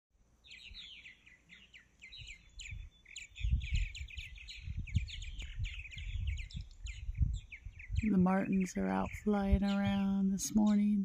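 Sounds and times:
birds chirping in flight: 0:00.4 - 0:11.0
low rumbling on microphone: 0:02.2 - 0:11.0.

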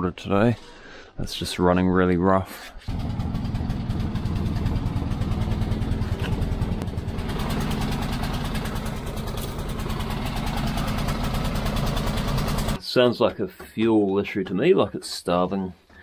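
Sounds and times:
generator engine running rough: 0:02.9 - 0:12.8.

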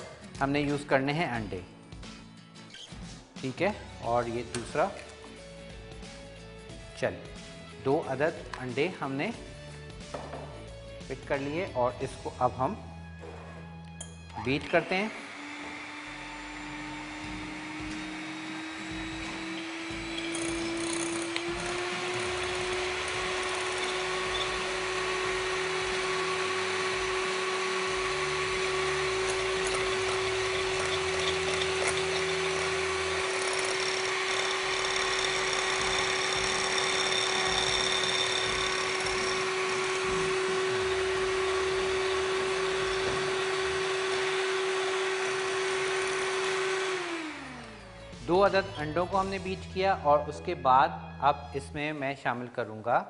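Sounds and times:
electric hand mixer whisking: 0:14.7 - 0:48.0.

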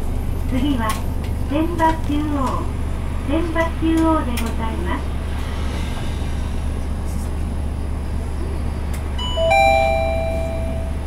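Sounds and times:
bus engine humming: 0:00.0 - 0:11.0
two-note bus chime: 0:09.2 - 0:11.0.

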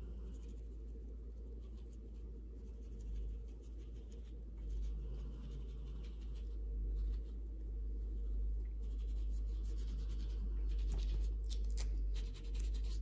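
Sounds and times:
low hum: 0:00.0 - 0:13.0
gloved fingers scratching wax: 0:08.8 - 0:13.0.

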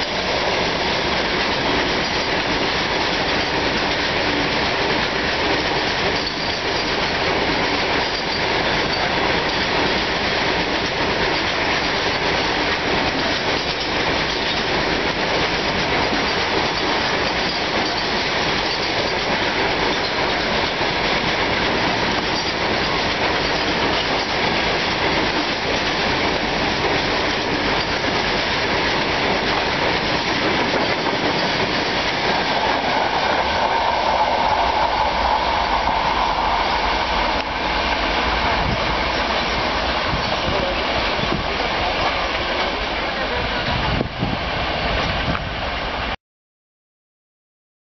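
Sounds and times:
freight train wheels clattering: 0:00.0 - 0:43.4.

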